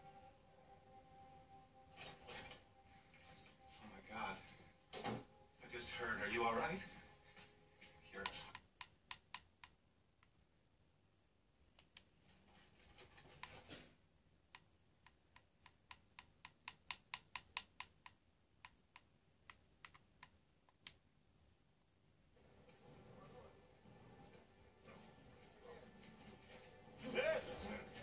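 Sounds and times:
remote control buttons clicking: 0:08.2 - 0:10.4, 0:14.5 - 0:21.0.

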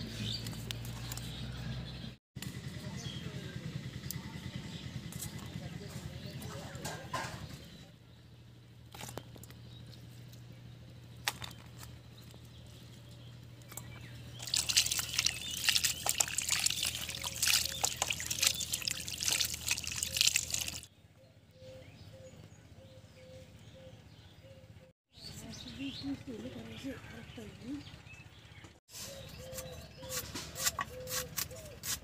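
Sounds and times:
water splashing in steel bowl: 0:14.4 - 0:20.9.

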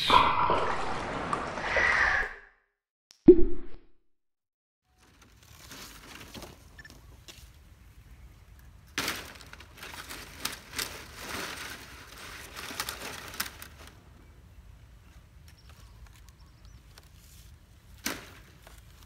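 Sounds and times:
dry palm fronds rustling: 0:05.0 - 0:07.8, 0:08.8 - 0:14.2, 0:15.0 - 0:19.0.

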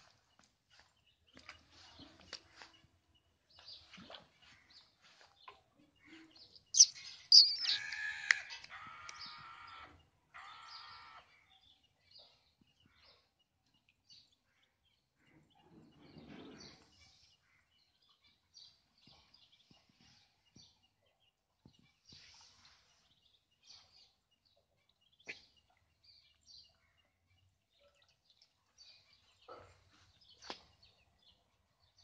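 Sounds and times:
ducklings peeping: 0:06.6 - 0:09.8.

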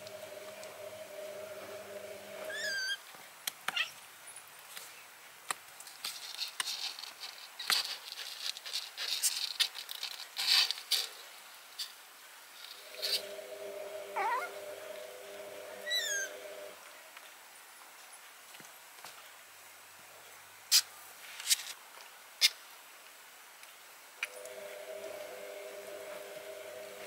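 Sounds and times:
steady hum: 0:00.0 - 0:02.8, 0:12.6 - 0:16.9, 0:24.2 - 0:27.0
kitten mewing: 0:02.5 - 0:03.0, 0:14.1 - 0:14.7, 0:15.8 - 0:16.3
kittens scratching in cardboard box: 0:06.0 - 0:11.2.

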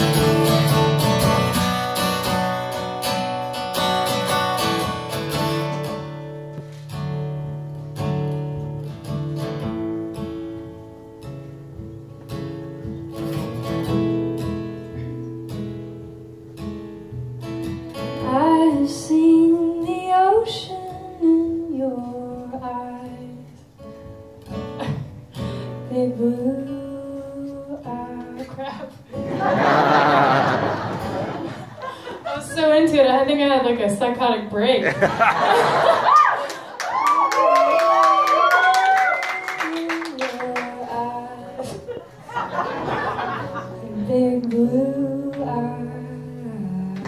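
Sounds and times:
acoustic guitar strumming: 0:00.0 - 0:36.0, 0:39.5 - 0:47.0
woman singing: 0:18.2 - 0:23.6, 0:25.6 - 0:29.0, 0:39.2 - 0:42.0, 0:43.7 - 0:47.0.

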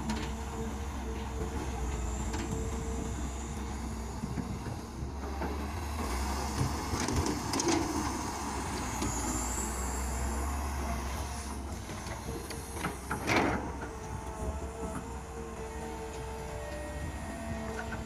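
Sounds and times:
excavator diesel engine running: 0:00.0 - 0:18.0.

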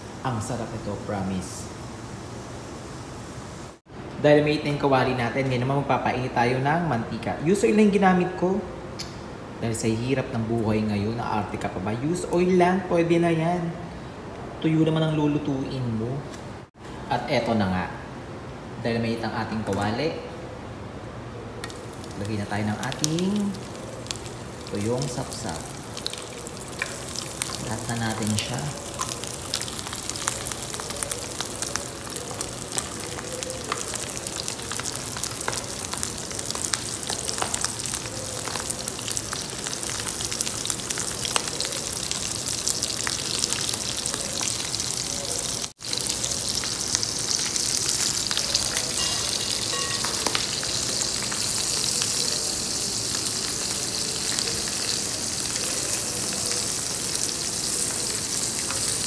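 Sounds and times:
fish frying in hot oil: 0:21.6 - 0:59.0
oil crackling spatter: 0:21.6 - 0:59.0.

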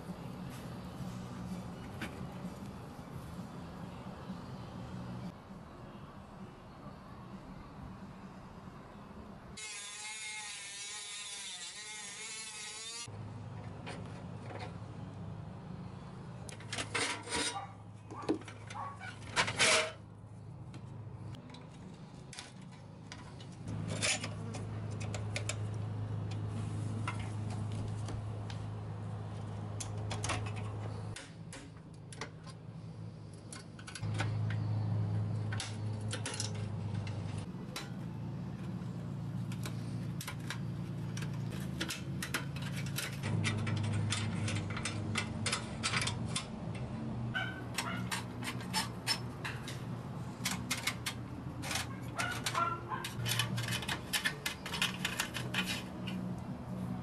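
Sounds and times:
screwdriver clicking and scraping metal: 0:35.4 - 0:37.9, 0:39.5 - 0:56.5.

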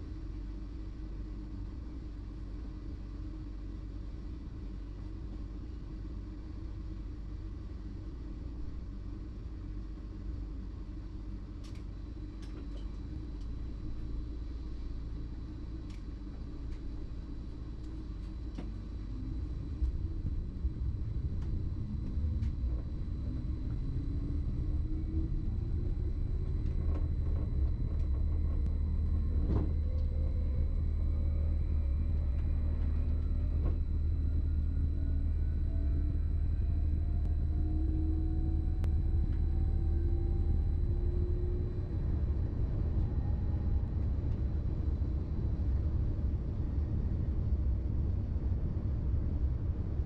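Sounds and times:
train low rumble: 0:00.0 - 0:50.0
traction drive whine rising: 0:12.4 - 0:50.0.

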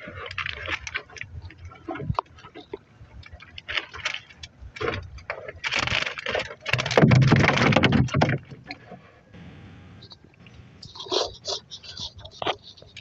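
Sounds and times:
fish trap rattling against wooden boat: 0:00.0 - 0:09.0.

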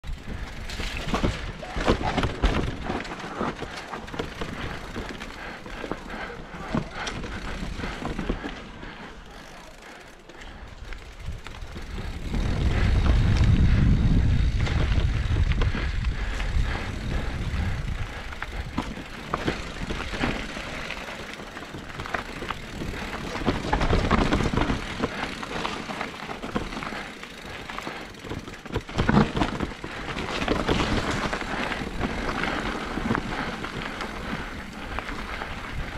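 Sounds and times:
bike rattling over bumps: 0:00.0 - 0:35.9
bike tyres crunching over dirt: 0:00.0 - 0:35.9
wind buffeting microphone: 0:11.2 - 0:20.5, 0:29.6 - 0:35.9.

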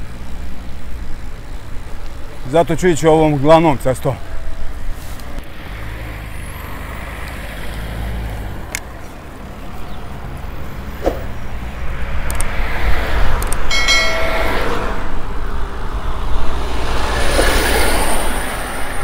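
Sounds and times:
road traffic passing: 0:00.0 - 0:19.0
short chime: 0:13.7 - 0:15.1.

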